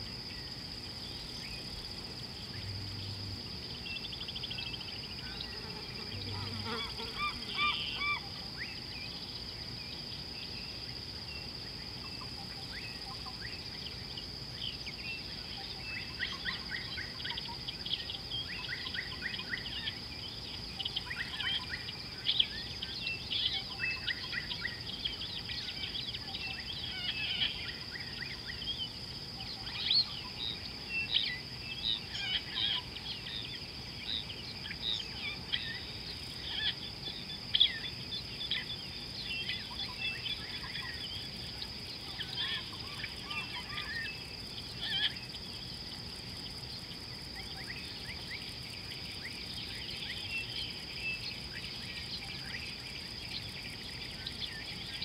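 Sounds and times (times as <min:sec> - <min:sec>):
birds chirping and trilling: 0:34.1 - 0:45.7.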